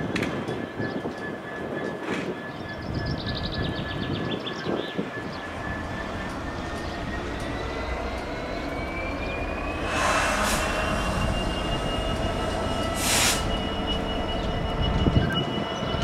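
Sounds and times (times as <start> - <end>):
diesel locomotive rumbling: 0.0 - 16.0
short hissing bursts: 13.0 - 13.5.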